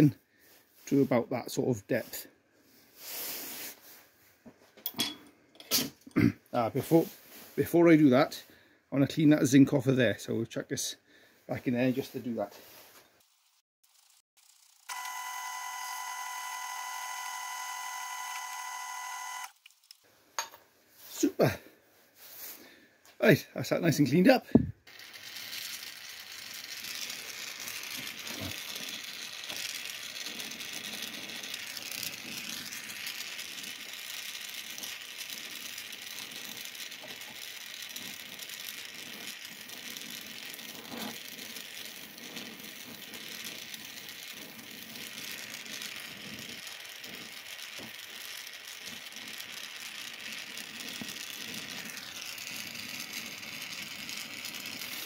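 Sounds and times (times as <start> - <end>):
blowtorch flame hissing: 24.8 - 33.8, 34.4 - 55.0.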